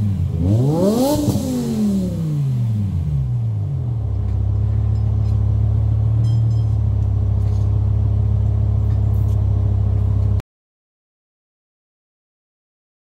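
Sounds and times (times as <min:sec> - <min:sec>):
car engine revving and idling: 0:00.0 - 0:10.4.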